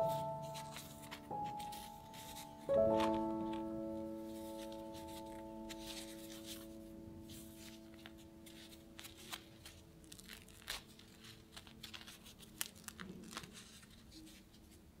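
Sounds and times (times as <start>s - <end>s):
bread crust crackling: 8.9s - 14.0s.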